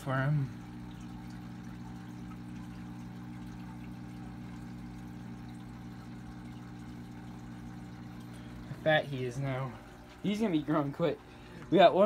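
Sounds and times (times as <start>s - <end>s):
aquarium filter humming: 0.0s - 12.0s
water trickling: 0.0s - 12.0s.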